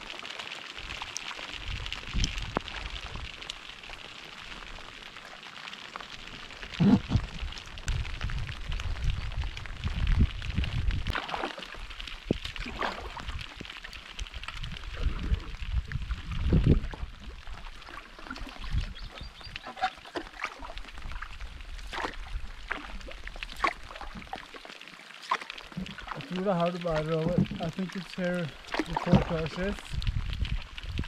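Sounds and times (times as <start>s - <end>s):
wind buffeting microphone: 1.6s - 3.4s, 6.8s - 11.2s, 14.2s - 17.3s, 28.9s - 31.0s
paddle splashing water: 11.1s - 14.1s, 16.8s - 30.0s.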